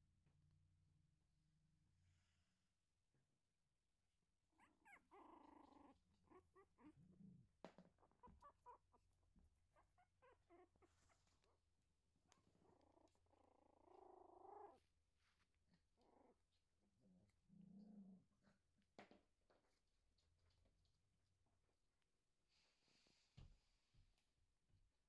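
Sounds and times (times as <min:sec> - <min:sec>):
puppy whining: 0:04.5 - 0:11.7, 0:12.4 - 0:14.9, 0:15.7 - 0:16.6
puppies squeaking: 0:04.6 - 0:07.0, 0:08.0 - 0:11.5
puppy grunting: 0:04.8 - 0:09.1.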